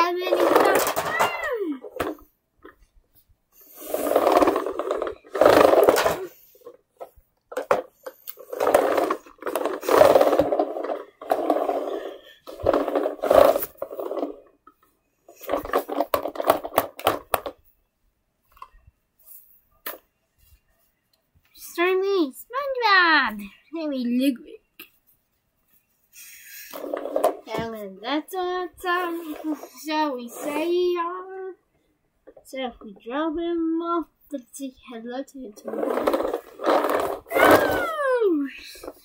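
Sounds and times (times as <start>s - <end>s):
toys scraping on carpet: 0.2s - 1.2s, 3.6s - 6.8s, 7.7s - 14.5s, 26.3s - 27.6s, 28.9s - 30.8s, 35.6s - 38.0s.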